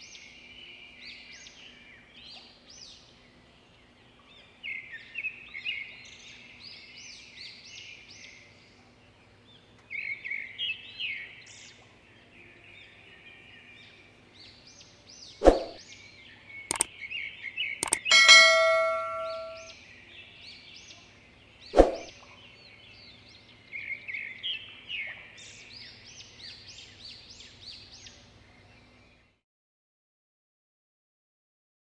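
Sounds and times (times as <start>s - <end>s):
birds chirping: 16.6s - 16.9s, 17.6s - 19.7s
sharp clicks: 17.8s - 19.6s
bell ding: 17.8s - 19.7s.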